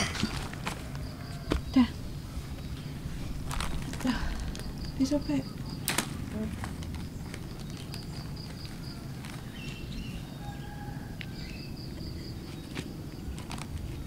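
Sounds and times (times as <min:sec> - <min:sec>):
plastic bag clicks: 0:05.8 - 0:09.5.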